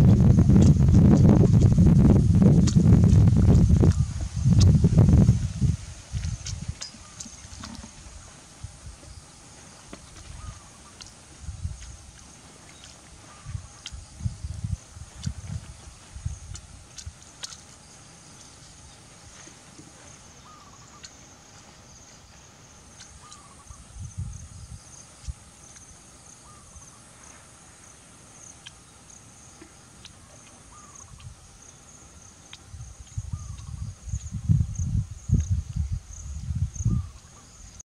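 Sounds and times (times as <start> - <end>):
wind buffeting microphone: 0.0 - 9.2, 10.1 - 17.6, 23.3 - 25.5, 32.5 - 37.8
insects trilling: 0.0 - 37.8.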